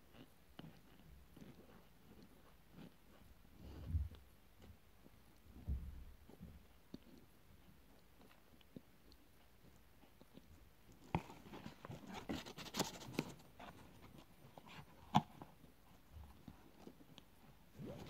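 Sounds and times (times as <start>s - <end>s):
cardboard packaging rustling: 11.2s - 14.2s.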